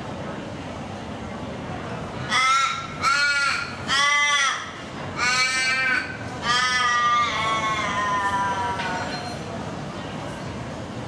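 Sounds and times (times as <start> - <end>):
raven cawing: 2.3 - 8.8.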